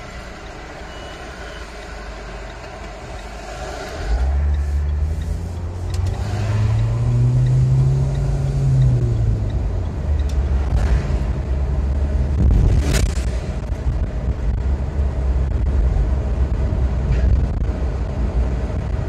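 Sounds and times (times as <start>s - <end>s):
car engine rumble: 0.0s - 19.0s
road noise: 0.0s - 19.0s.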